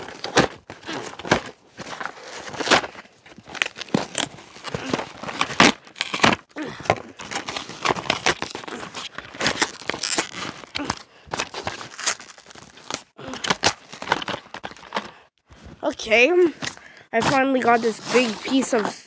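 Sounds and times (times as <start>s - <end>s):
packaging crinkling and tearing: 0.0s - 15.2s.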